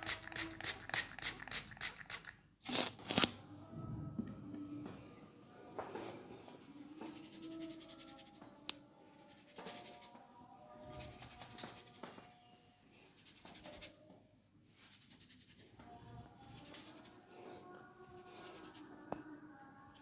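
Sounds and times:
fingers rubbing through hair: 7.0s - 8.4s, 11.0s - 12.2s, 13.2s - 14.0s, 16.5s - 17.2s, 18.1s - 18.8s.

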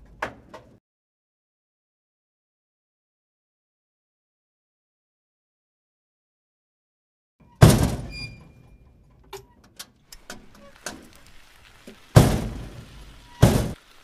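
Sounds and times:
gravel pouring out: 10.1s - 14.0s
pebbles ticking: 10.1s - 14.0s.

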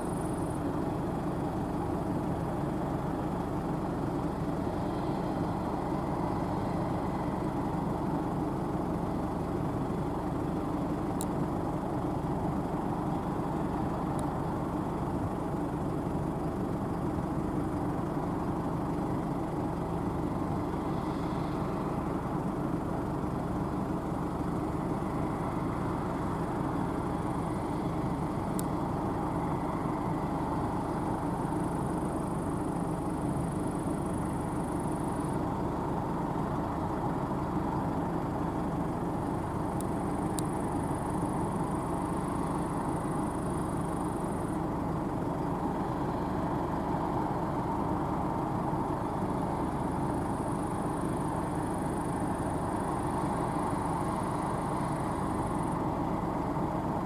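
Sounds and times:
combine harvester running: 0.0s - 57.0s
faint high ticks: 11.1s - 11.4s, 14.1s - 14.4s, 28.5s - 28.8s, 39.2s - 44.5s.

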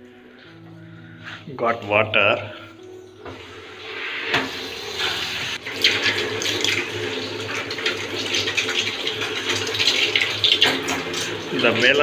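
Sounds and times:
water spraying from pipe: 3.6s - 12.0s.

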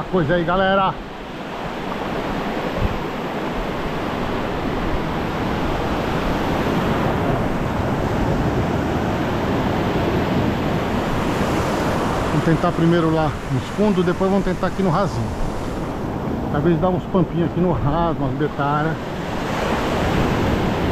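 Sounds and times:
ocean surf washing onto beach: 0.0s - 20.9s.

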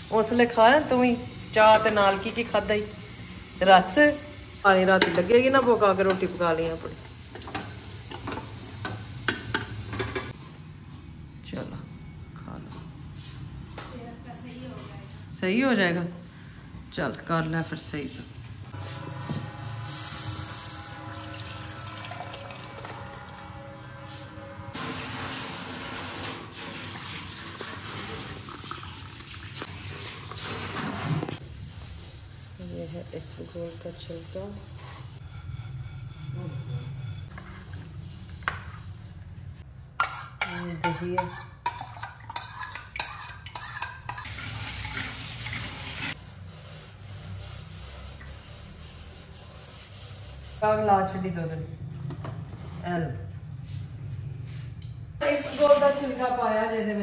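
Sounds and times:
milk pouring into a pot: 21.1s - 23.5s, 26.6s - 31.0s
metal spoon clinking on ceramic: 40.0s - 44.3s.

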